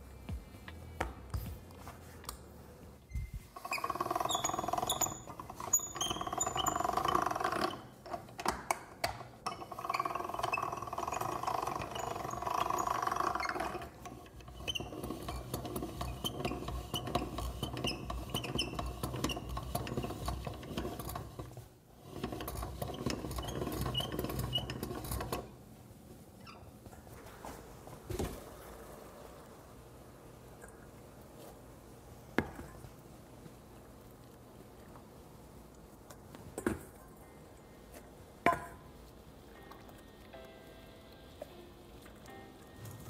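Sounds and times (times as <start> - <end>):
pasta machine gears clicking: 3.6 - 8.6, 9.5 - 25.5.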